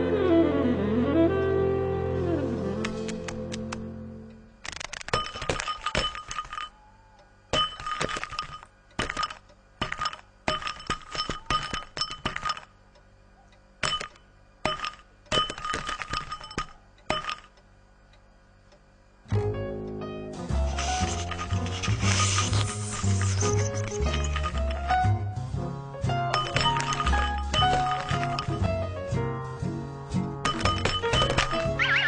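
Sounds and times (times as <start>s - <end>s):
hard bowl clinking and rattling: 7.6s - 12.7s, 13.8s - 17.5s, 26.4s - 28.6s.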